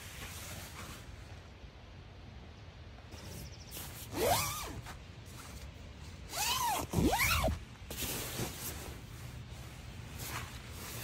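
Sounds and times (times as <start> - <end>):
tent zipper being pulled open: 3.2 - 4.9, 6.3 - 9.1.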